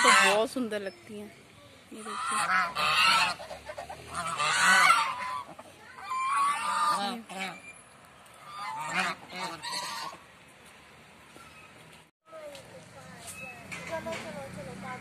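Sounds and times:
geese honking: 0.0 - 0.6, 2.0 - 7.7, 8.3 - 10.3.

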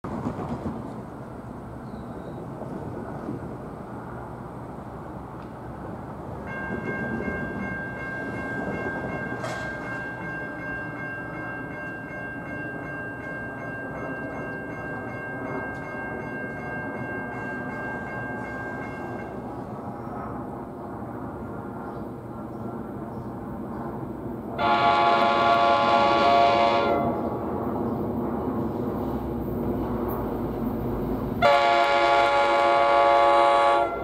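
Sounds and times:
low rumble of train: 0.0 - 34.0
distant train air horn chord: 24.6 - 27.2, 31.4 - 34.0.

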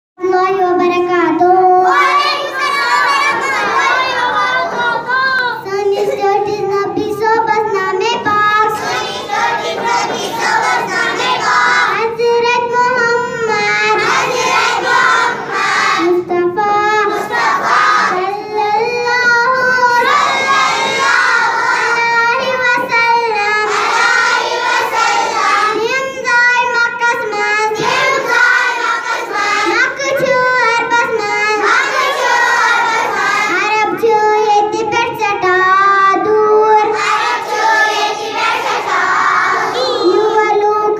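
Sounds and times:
child singing into a microphone: 0.2 - 40.9.

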